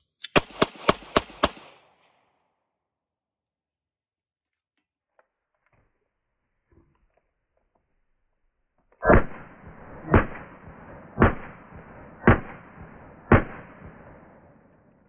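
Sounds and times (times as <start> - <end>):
pistol shots with echo: 0.4 - 2.0, 9.0 - 14.8.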